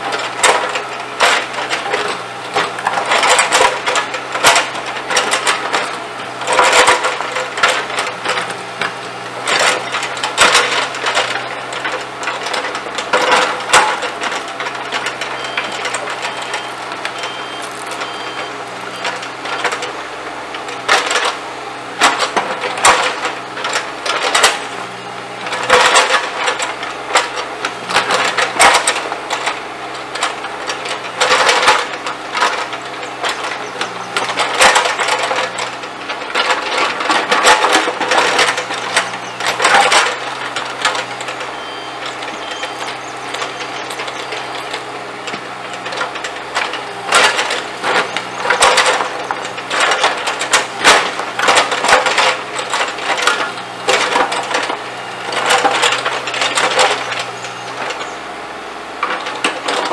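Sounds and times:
excavator diesel engine running: 0:00.0 - 0:59.9
bricks clattering and scraping: 0:25.4 - 0:59.9.

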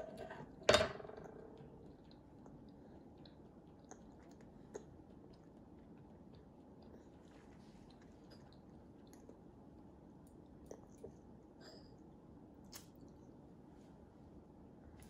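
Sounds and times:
toddler chewing food: 0:01.6 - 0:11.6.

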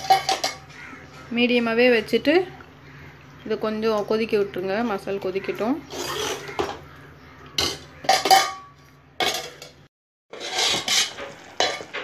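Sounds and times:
pot lid clanking: 0:00.0 - 0:00.7, 0:07.6 - 0:09.8, 0:10.4 - 0:12.0.

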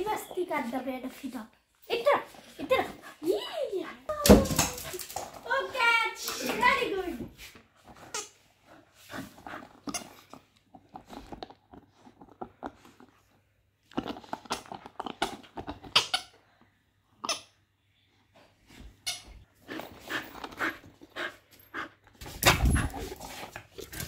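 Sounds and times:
dog gnawing a toy: 0:07.8 - 0:16.4.

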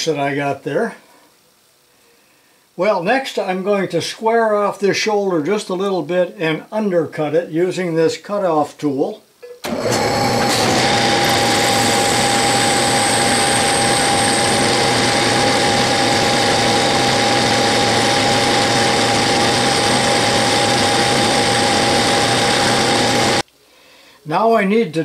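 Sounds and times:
metal lathe running: 0:09.6 - 0:23.4
steady whine: 0:09.6 - 0:23.4.

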